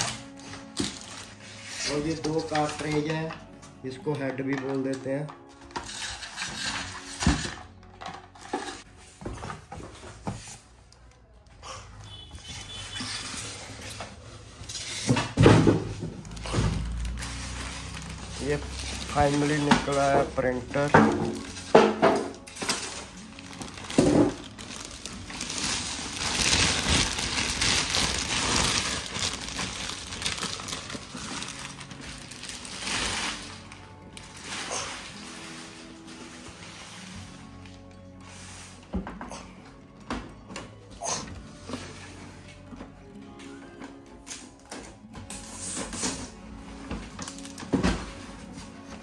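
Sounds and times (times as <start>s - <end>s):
packaging rustling: 15.8s - 21.8s, 22.4s - 37.9s, 44.3s - 49.0s.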